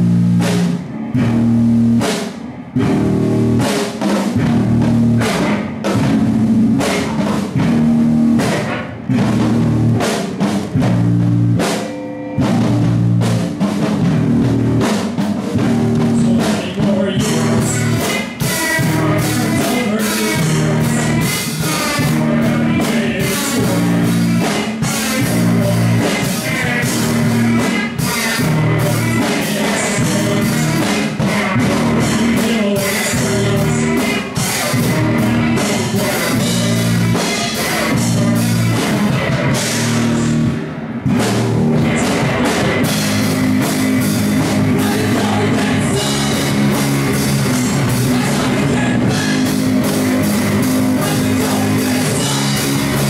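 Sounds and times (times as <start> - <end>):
live rock band playing: 0.0 - 53.0
person singing: 16.0 - 40.4, 44.0 - 53.0.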